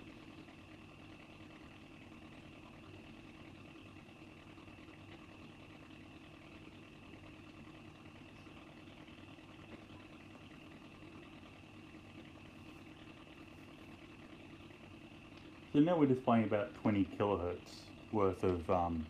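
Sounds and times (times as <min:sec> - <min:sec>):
constant high whine: 0:00.0 - 0:19.0
radio buzzing hiss: 0:06.5 - 0:19.0.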